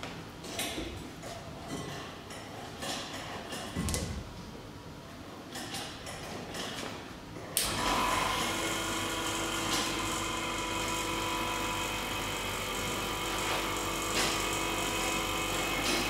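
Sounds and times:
vacuum pump running: 7.6s - 16.0s.

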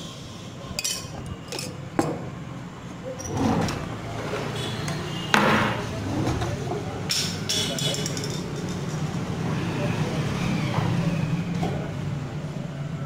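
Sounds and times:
utensils clinking and knocking: 0.8s - 2.1s, 7.1s - 9.4s.

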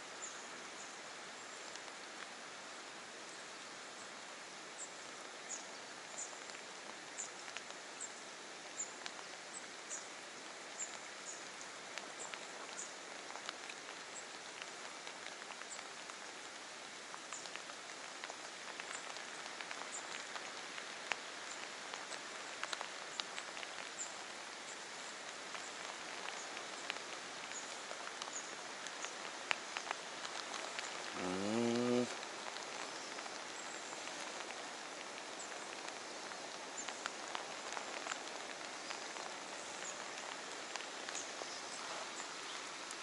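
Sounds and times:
water hissing: 31.0s - 32.2s.

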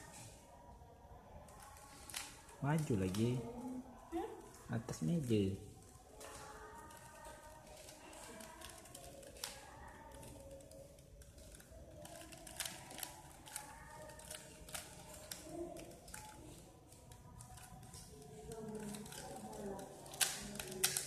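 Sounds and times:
puzzle cube plastic clicking: 6.9s - 21.0s.

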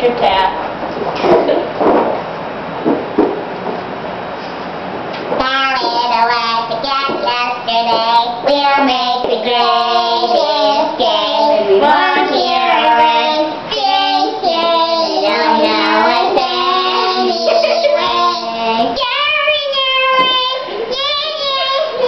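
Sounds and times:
girls singing in helium voices: 5.4s - 22.0s.

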